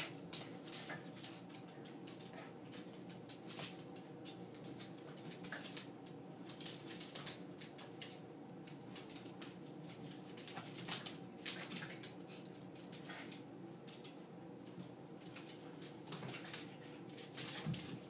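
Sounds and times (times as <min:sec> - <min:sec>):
dog claws scrabbling on wood floor: 0:00.0 - 0:18.0.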